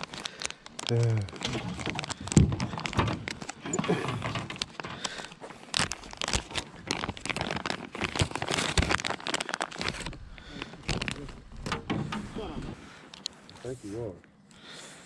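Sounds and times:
crinkling and crackling: 0.0 - 14.8
sharp clicks and knocks: 0.6 - 5.4, 11.6 - 12.3.

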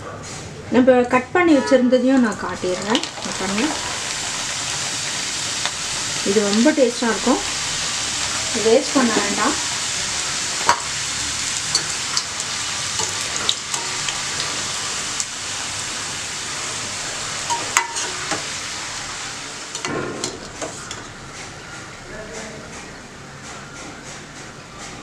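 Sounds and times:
dough sizzling in hot oil: 2.2 - 21.2
steel spoon clinking in pan: 17.5 - 18.3.

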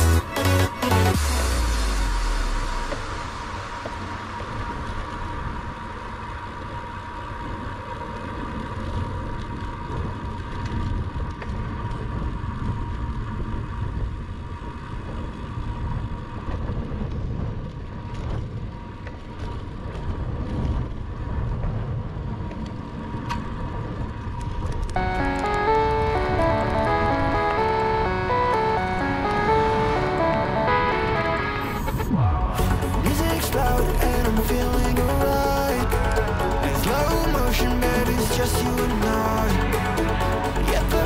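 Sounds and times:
bicycle tyre noise on road: 1.8 - 25.0.

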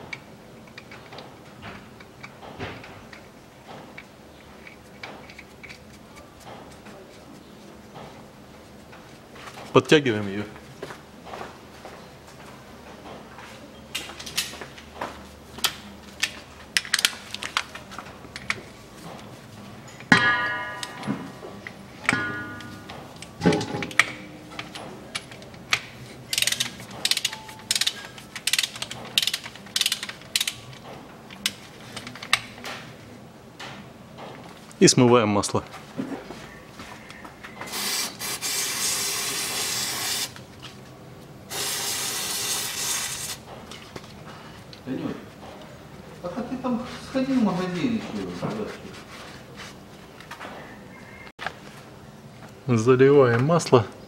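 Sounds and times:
loud metallic ring: 20.1 - 24.3
metal hand tools clicking and tapping: 20.7 - 30.8.

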